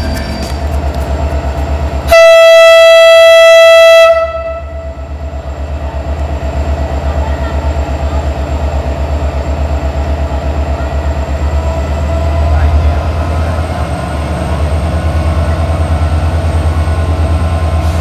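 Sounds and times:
locomotive horn blast: 2.0 - 5.1.

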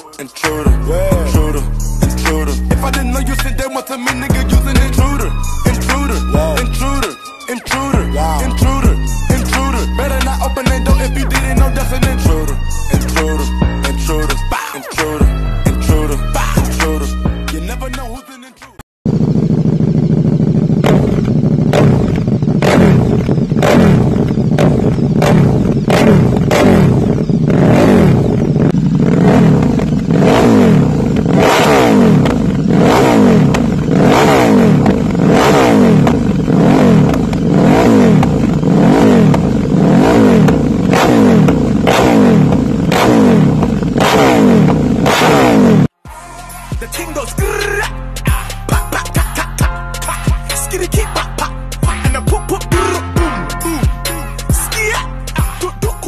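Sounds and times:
motorcycle engine revving: 0.1 - 18.2, 19.1 - 46.0, 47.0 - 56.0
exhaust pops and cracks: 19.7 - 28.7, 32.1 - 32.7, 33.4 - 38.7, 40.4 - 45.0.

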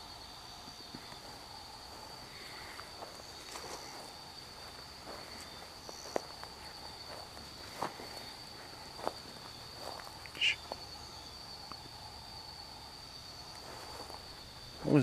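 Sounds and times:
night insects trilling: 0.0 - 15.0
footsteps on grass and leaves: 1.0 - 11.2, 13.5 - 15.0.

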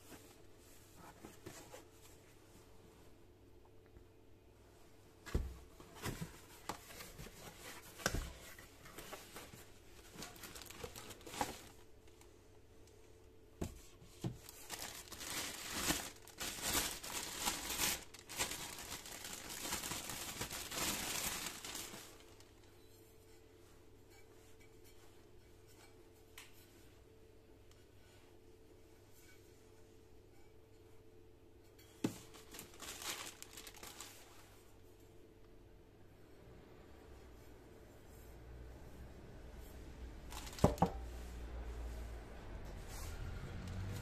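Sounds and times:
plastic bag crinkling: 10.0 - 11.9, 14.3 - 22.5, 32.2 - 34.4, 40.3 - 41.0.

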